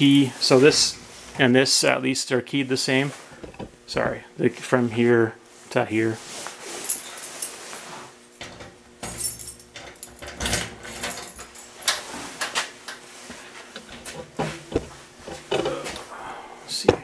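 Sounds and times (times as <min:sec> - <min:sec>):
keys jangling: 0:06.9 - 0:07.6, 0:09.0 - 0:12.0.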